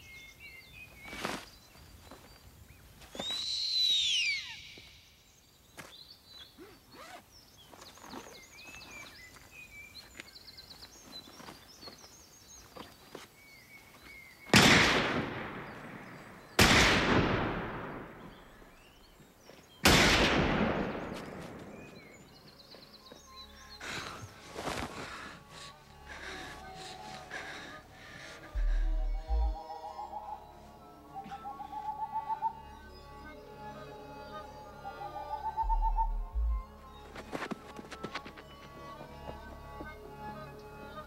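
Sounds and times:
birds chirping: 0:00.0 - 0:14.6, 0:17.7 - 0:19.9, 0:20.8 - 0:41.0.

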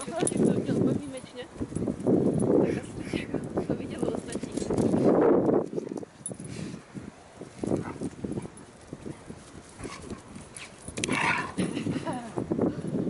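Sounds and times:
dogs scuffling and play-fighting: 0:03.6 - 0:12.1.

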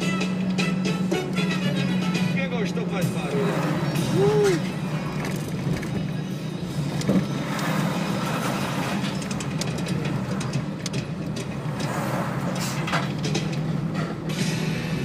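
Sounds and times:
car engine drone: 0:00.0 - 0:15.0
road noise: 0:00.0 - 0:15.0
trucks passing: 0:00.0 - 0:15.0.

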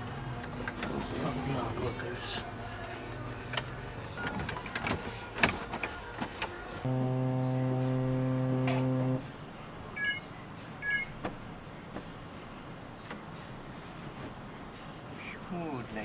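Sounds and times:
low electrical buzz: 0:06.9 - 0:09.4
short electronic beeps: 0:10.0 - 0:10.2, 0:10.8 - 0:11.1.

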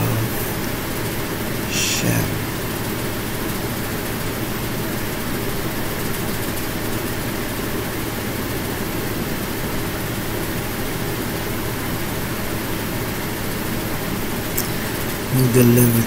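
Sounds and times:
low rushing room noise: 0:00.0 - 0:03.2.

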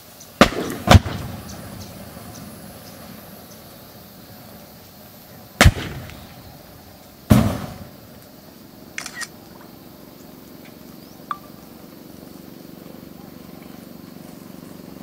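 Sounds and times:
fire flames: 0:00.0 - 0:10.4
lighters bursting with bangs: 0:00.4 - 0:03.4, 0:05.6 - 0:08.2.

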